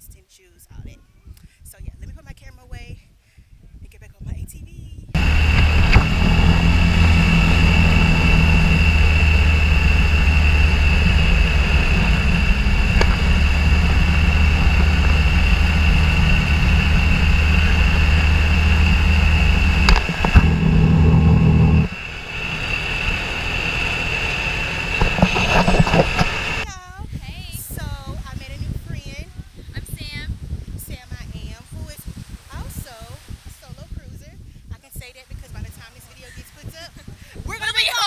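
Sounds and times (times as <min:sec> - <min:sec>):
atv engine running: 0:05.2 - 0:26.7.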